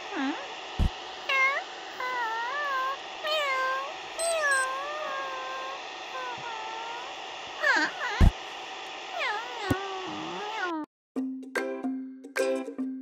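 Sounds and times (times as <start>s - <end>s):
cat meowing: 1.3s - 7.0s, 9.2s - 10.9s.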